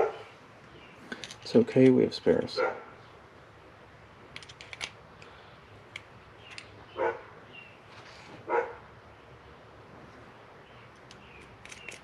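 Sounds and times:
small metal parts clicking: 1.1s - 1.5s, 4.3s - 5.3s, 5.9s - 6.7s, 10.9s - 12.0s.

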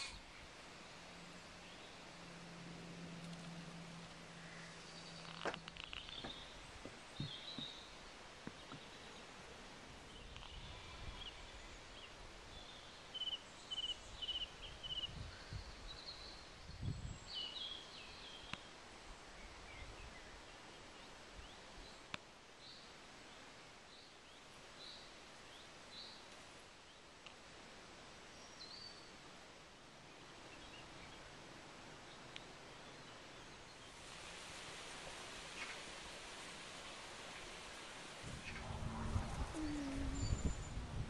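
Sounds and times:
faint countryside ambience: 0.0s - 41.0s
small birds chirping: 4.4s - 27.1s
low rumbles: 38.2s - 41.0s.

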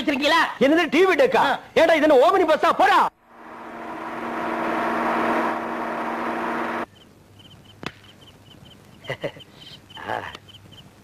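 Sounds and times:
lorry engine drone: 3.2s - 6.9s
crickets chirping: 6.8s - 10.9s.

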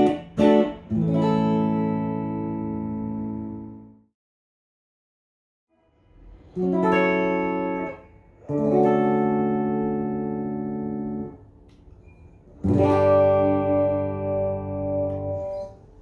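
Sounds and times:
clean electric guitar chords: 0.0s - 4.0s, 6.6s - 11.6s, 12.6s - 15.9s.

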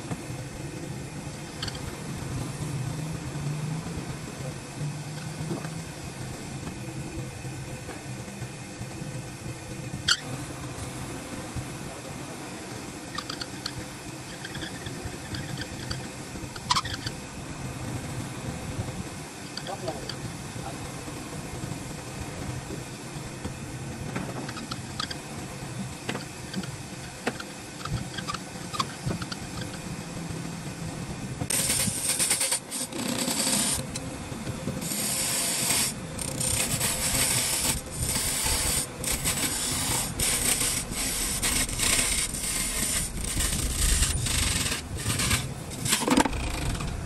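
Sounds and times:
hand scraping and rubbing on wood: 34.8s - 47.0s.

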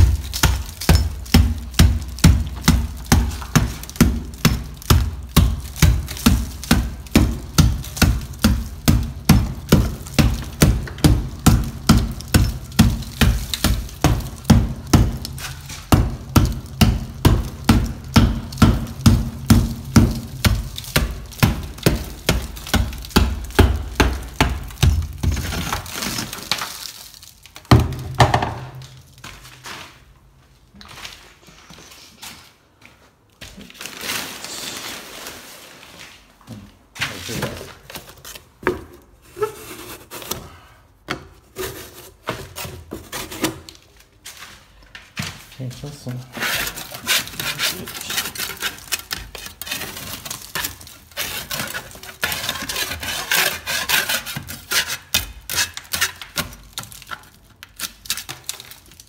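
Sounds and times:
tool chipping plaster: 0.0s - 26.8s, 46.3s - 59.0s
plaster crumbling: 0.0s - 29.9s, 33.4s - 36.4s, 46.3s - 59.0s.

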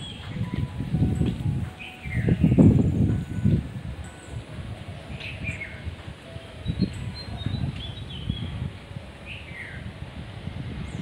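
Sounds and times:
high bird chirps: 0.0s - 0.6s, 1.8s - 2.7s, 5.2s - 8.6s.

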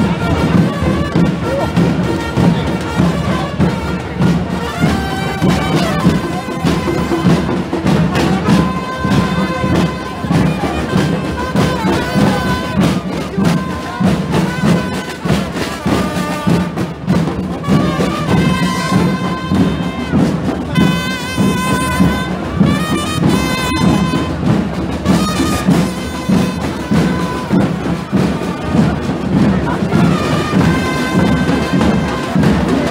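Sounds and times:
steady drumbeat: 0.0s - 32.9s
trumpets playing: 0.0s - 32.9s.

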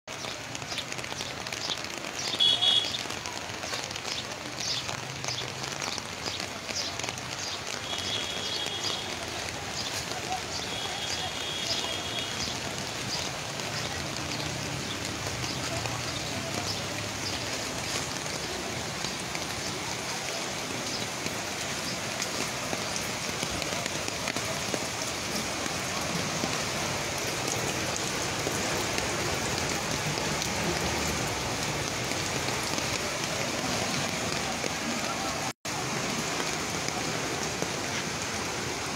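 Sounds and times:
raindrops ticking on surfaces: 0.1s - 38.9s
steady rain falling: 0.1s - 38.9s.

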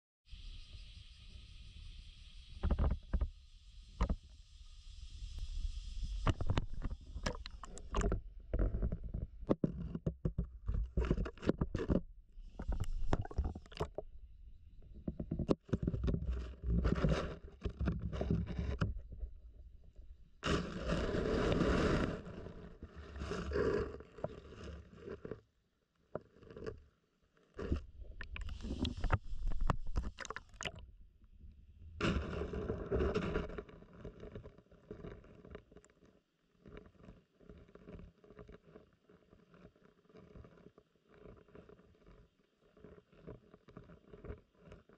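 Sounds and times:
water sloshing: 27.6s - 30.8s.

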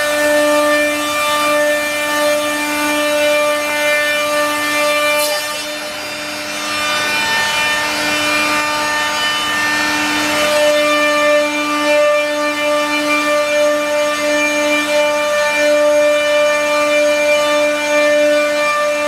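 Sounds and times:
bits cutting wood: 0.0s - 11.0s
cnc router whine: 0.0s - 19.0s.

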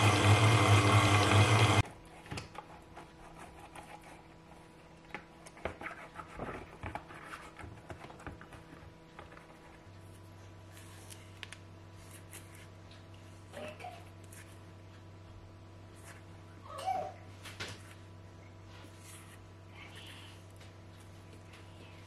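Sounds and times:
stand mixer motor beating dough: 0.0s - 1.8s
low steady hum: 1.4s - 22.0s.

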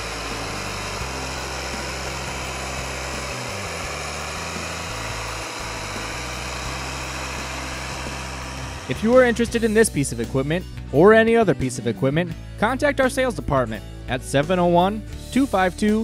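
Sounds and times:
tractor diesel engine running: 0.0s - 10.2s.

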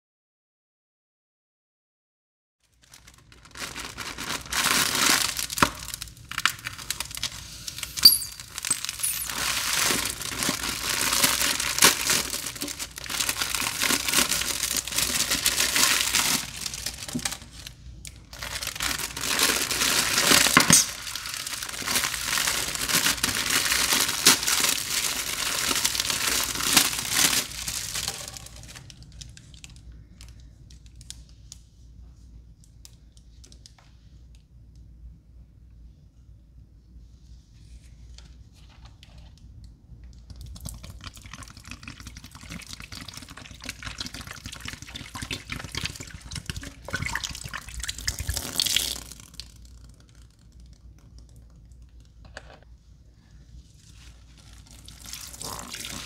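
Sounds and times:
packaging tearing and crinkling: 2.8s - 29.8s.

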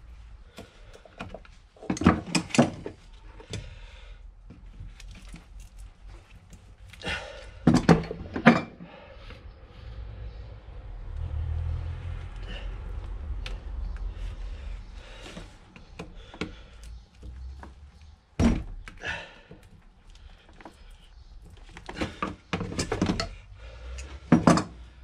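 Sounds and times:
low rumble: 9.3s - 15.7s.

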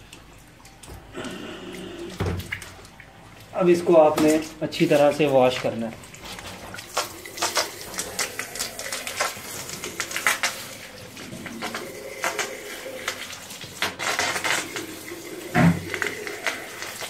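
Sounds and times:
water running from a hose: 3.5s - 17.0s.

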